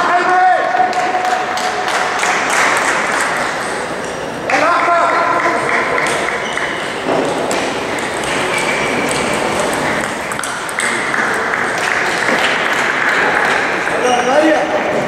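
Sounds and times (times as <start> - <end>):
table tennis ball pinging: 2.2 - 14.0.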